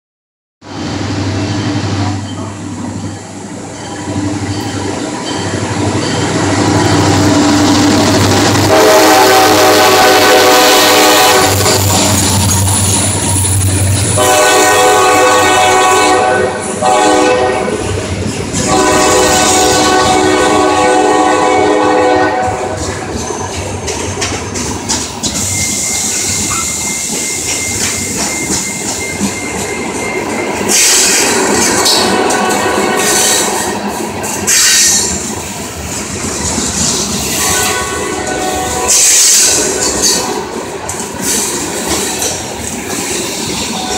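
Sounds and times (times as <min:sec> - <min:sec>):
diesel locomotive engine rumble: 0:00.6 - 0:43.9
locomotive horn chord: 0:08.6 - 0:11.9, 0:14.2 - 0:17.8, 0:18.6 - 0:22.9, 0:32.0 - 0:33.3, 0:37.4 - 0:40.5
train wheels clacking on rail joints: 0:22.0 - 0:43.9.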